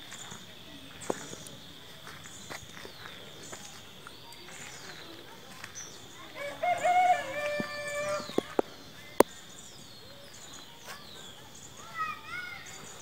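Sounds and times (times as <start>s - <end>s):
small birds whistling faintly: 0.0s - 13.0s
large fowl calling: 6.4s - 8.6s.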